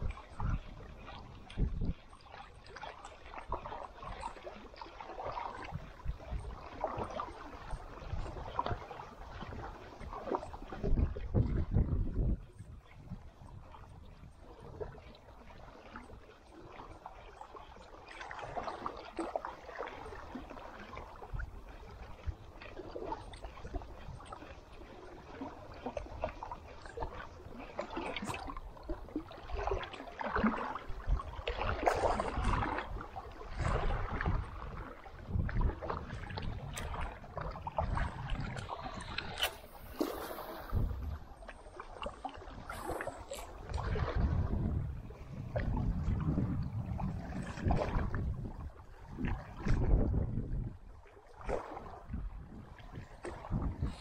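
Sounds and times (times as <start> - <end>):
water splashing against boat: 0.0 - 54.0
wind rumbling on microphone: 0.0 - 54.0.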